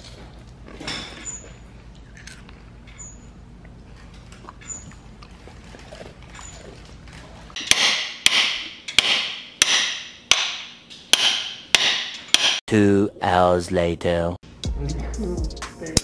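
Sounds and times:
hammer clanking on metal: 0:07.6 - 0:12.6.

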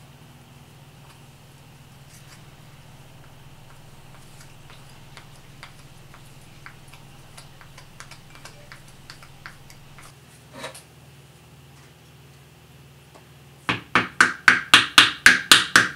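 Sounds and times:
steady low hum: 0:00.0 - 0:10.2.

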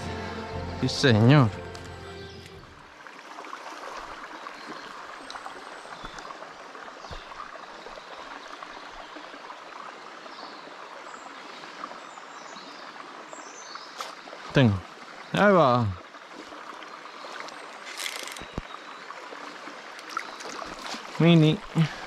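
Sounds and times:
river water rushing: 0:13.3 - 0:22.0.

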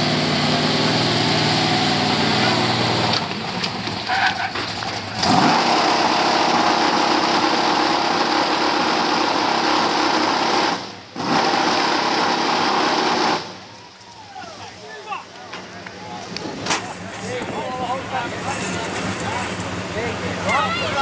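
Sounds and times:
fire truck engine high-revving: 0:00.0 - 0:13.7.

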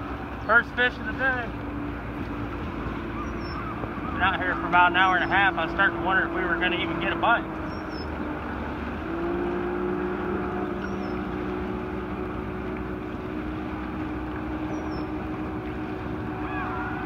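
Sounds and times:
motorboat engine droning: 0:00.0 - 0:17.0
wind and water hiss: 0:00.0 - 0:17.0.

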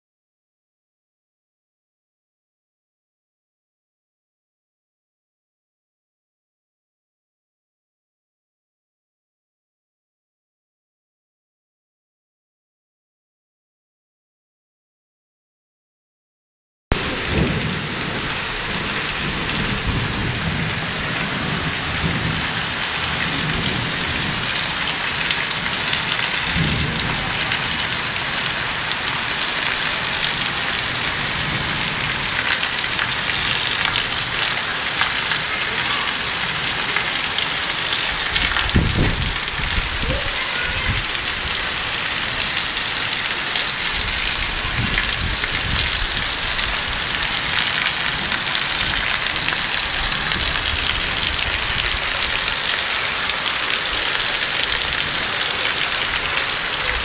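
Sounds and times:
heavy rain pouring: 0:16.9 - 0:57.0.

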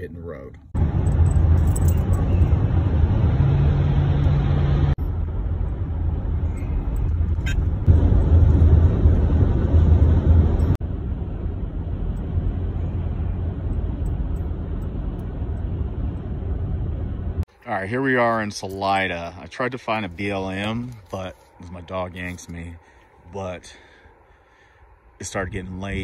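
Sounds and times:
vehicle road noise rumble: 0:00.0 - 0:26.0.

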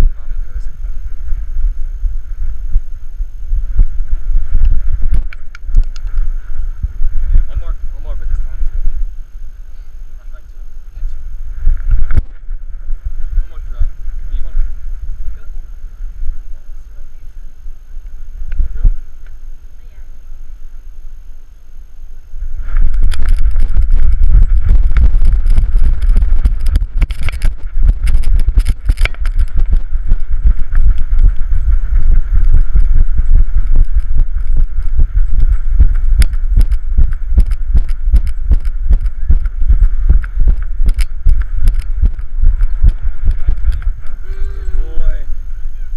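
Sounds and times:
heavy low rumble: 0:00.0 - 0:45.9
camera knocking about: 0:04.6 - 0:06.3, 0:11.7 - 0:12.5, 0:18.4 - 0:19.3, 0:22.7 - 0:45.1.

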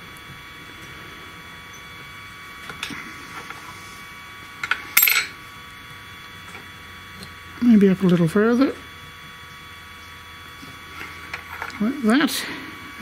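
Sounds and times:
spanners clinking on metal: 0:04.6 - 0:05.3.

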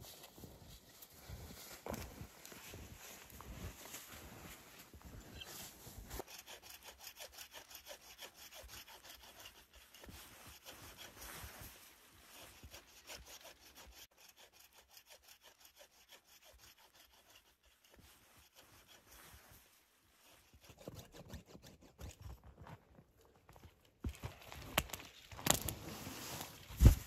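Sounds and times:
faint hand saw cutting wood: 0:06.2 - 0:19.4, 0:20.2 - 0:22.5.

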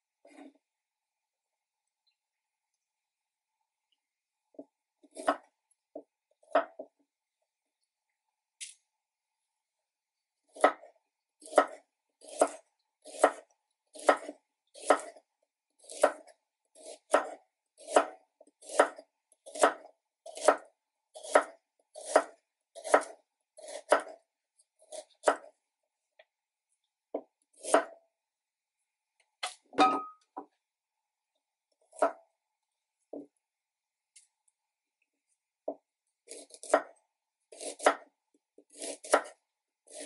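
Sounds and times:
knife slicing carrots on board: 0:05.0 - 0:05.5, 0:10.6 - 0:10.8, 0:11.4 - 0:15.2, 0:15.8 - 0:24.2, 0:27.2 - 0:28.0, 0:36.3 - 0:36.9, 0:37.5 - 0:40.0.

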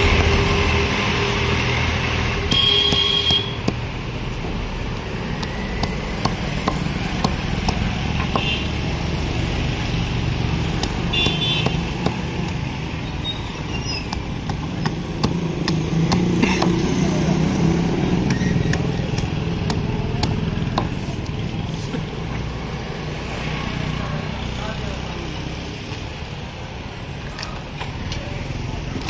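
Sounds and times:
street traffic hum: 0:00.0 - 0:29.0
cleaver chopping on wooden block: 0:02.5 - 0:03.9, 0:04.9 - 0:08.6, 0:10.5 - 0:12.7, 0:14.0 - 0:17.0, 0:17.6 - 0:21.0.

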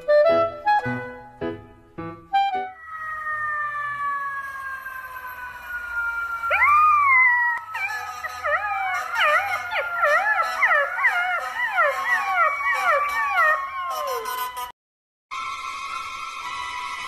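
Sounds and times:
puppy howling: 0:02.8 - 0:14.5.

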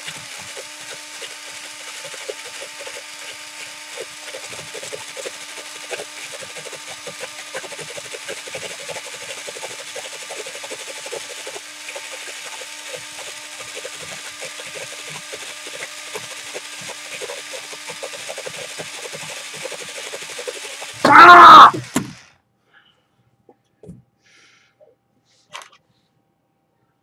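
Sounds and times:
pencil sharpener scraping: 0:00.0 - 0:21.0.

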